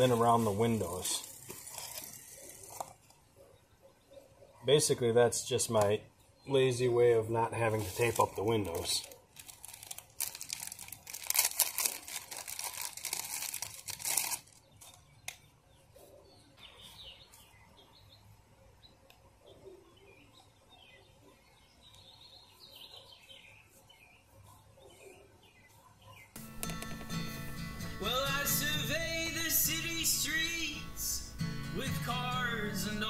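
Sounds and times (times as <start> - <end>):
plastic packaging crinkling: 7.7 - 15.1
faint bird chirps: 14.6 - 26.4.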